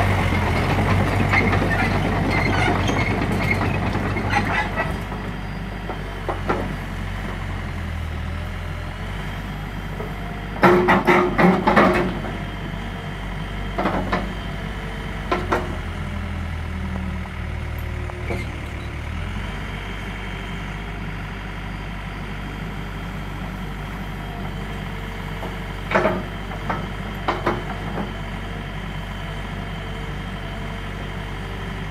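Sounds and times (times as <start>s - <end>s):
diesel engine running: 0.0s - 31.9s
excavator arm clanking: 0.3s - 5.3s, 10.6s - 12.4s, 15.2s - 15.9s, 25.7s - 28.2s.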